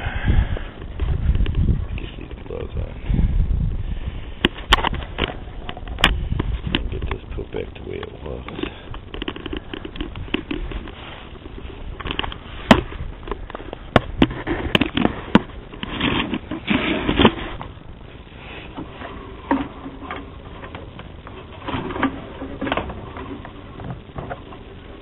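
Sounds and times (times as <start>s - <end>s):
camera handling scraping and rustling: 4.4s - 7.2s, 8.5s - 17.8s.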